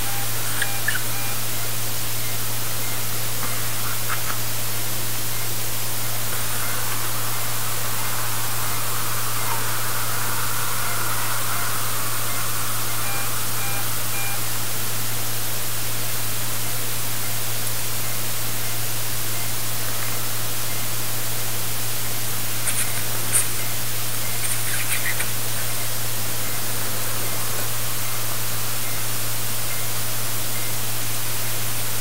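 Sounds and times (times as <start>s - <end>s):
faint short beeps: 0.0s - 7.6s, 10.7s - 14.6s
low hum: 0.0s - 32.0s
steady hiss: 0.0s - 32.0s.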